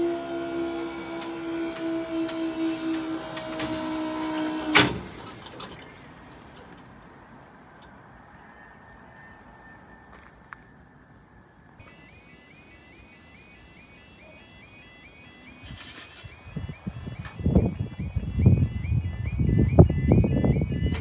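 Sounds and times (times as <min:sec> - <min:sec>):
barrier mechanism whine: 0:00.0 - 0:05.1, 0:11.8 - 0:21.0
quiet outdoor background: 0:00.0 - 0:21.0.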